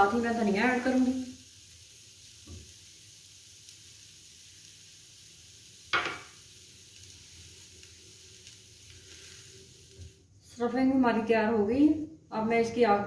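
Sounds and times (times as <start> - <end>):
food sizzling in oil: 0.0 - 10.3.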